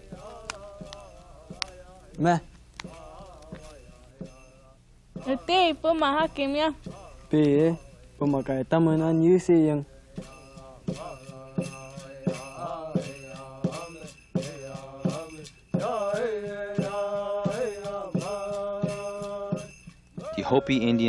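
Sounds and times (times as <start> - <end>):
person chanting: 0.0 - 2.2, 2.8 - 5.8
steady beat of jingling bells: 0.0 - 21.0.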